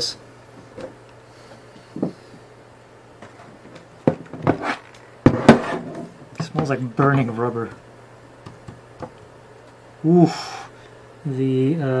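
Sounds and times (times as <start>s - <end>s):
knocks on a workbench: 4.0s - 4.6s, 5.2s - 6.0s.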